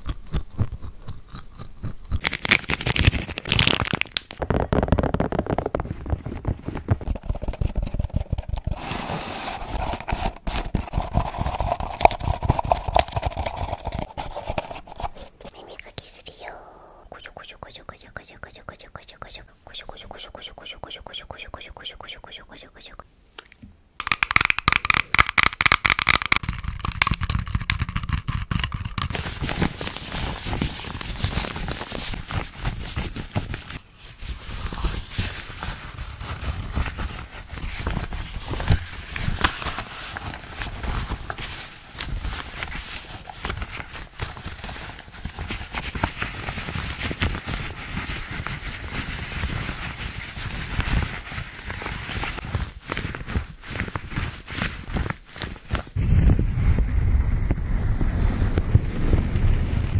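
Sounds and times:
small scrapes and clicks: 0.0 - 16.2, 19.2 - 33.8
rubber glove crinkling: 2.2 - 15.5, 24.0 - 56.4
tapping on sunglasses: 24.0 - 29.2.

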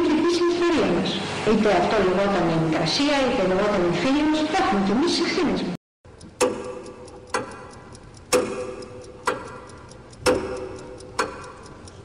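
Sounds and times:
clock ticking: 6.0 - 12.0.

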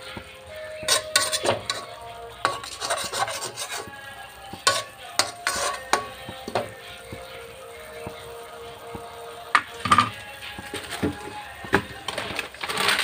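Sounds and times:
metal ladle scraping a wok: 0.0 - 8.3.

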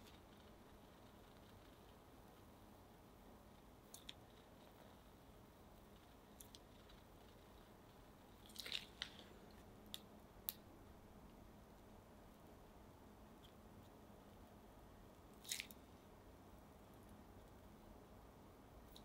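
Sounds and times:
piping bag squishes and crinkles: 8.3 - 9.7.

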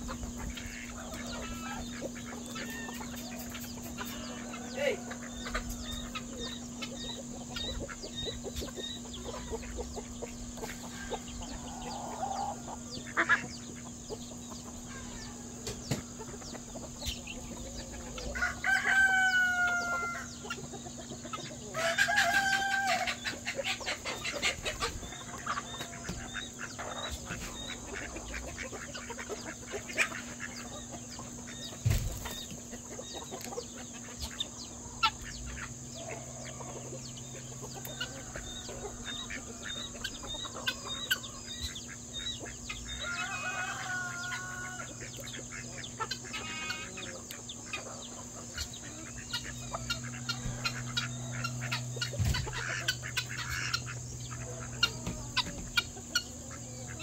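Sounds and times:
chickens clucking: 0.0 - 57.0
rooster crowing: 4.1 - 6.6, 18.1 - 20.5, 21.7 - 23.4, 37.7 - 41.2, 42.9 - 45.1.

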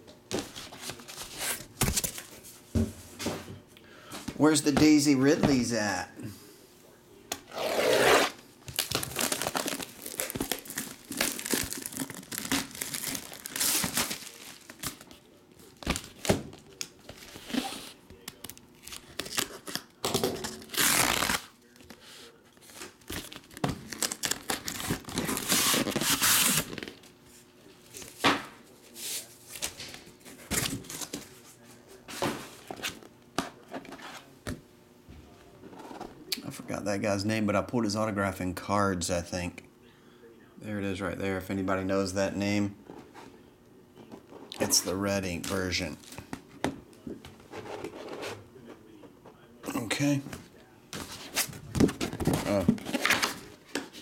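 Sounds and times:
plastic wrapping crinkling: 8.7 - 19.6.

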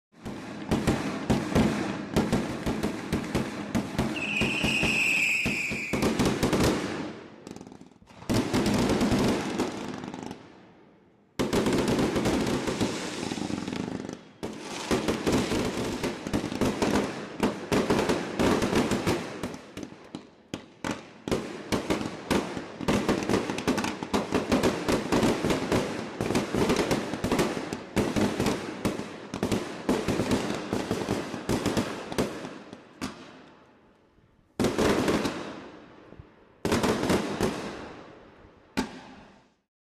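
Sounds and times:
fireworks crackling and banging: 0.1 - 10.6, 11.4 - 33.7, 34.6 - 38.2, 38.8 - 39.6
firework whistle: 4.1 - 6.2, 12.6 - 15.1.

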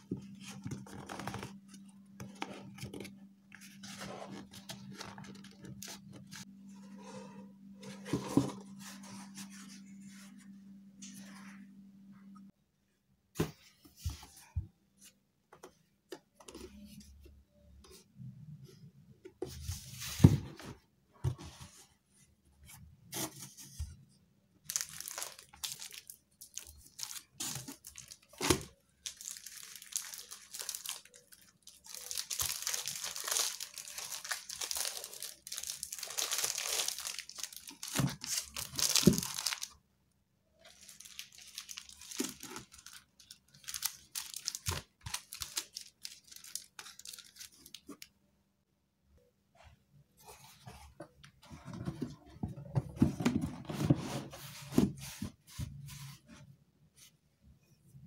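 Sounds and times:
paper and plastic rustling: 7.8 - 11.3, 24.6 - 39.8, 40.6 - 48.1, 50.2 - 56.3.

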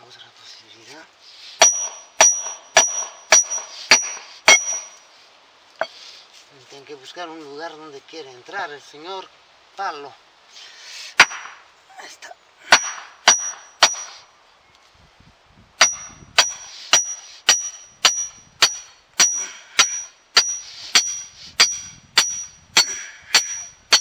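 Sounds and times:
iron stake clanging: 1.6 - 5.0, 5.8 - 6.0, 12.7 - 14.2, 15.8 - 24.0.

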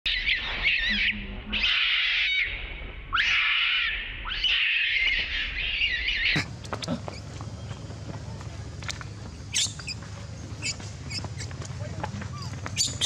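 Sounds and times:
baby monkey screaming: 0.1 - 6.5, 9.5 - 10.0, 12.3 - 13.0.

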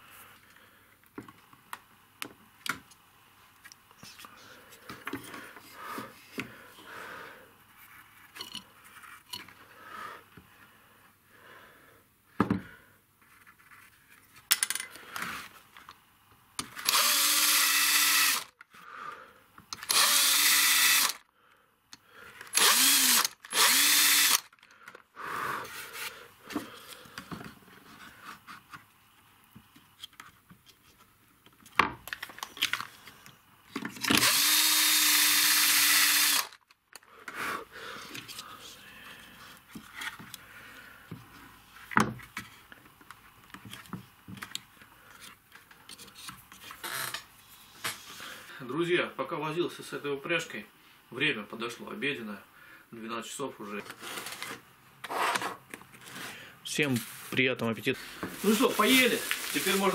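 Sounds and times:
electric drill boring into wood: 16.8 - 18.6, 19.8 - 21.2, 22.5 - 24.5, 34.1 - 36.6.

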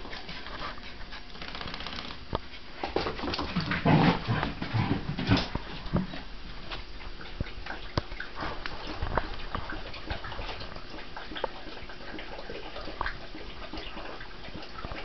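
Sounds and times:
dogs scuffling: 0.0 - 12.0.

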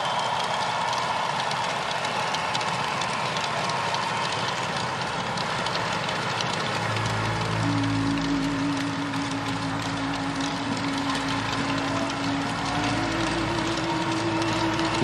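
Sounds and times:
crowd applauding and cheering: 0.0 - 15.0
low steady hum: 5.6 - 15.0.

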